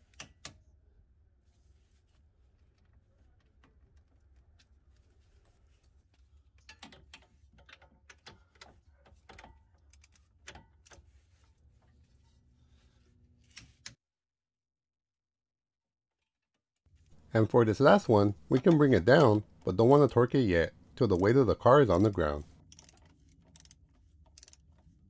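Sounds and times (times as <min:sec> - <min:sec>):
torque wrench clicks: 0:22.6 - 0:24.6.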